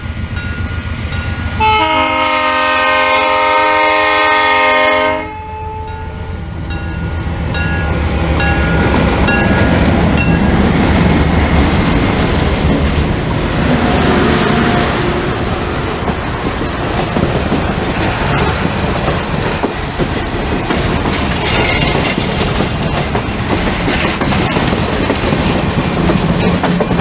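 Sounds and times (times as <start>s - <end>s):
train wheels rumbling on rails: 0.0s - 27.0s
locomotive air horn: 1.6s - 6.1s.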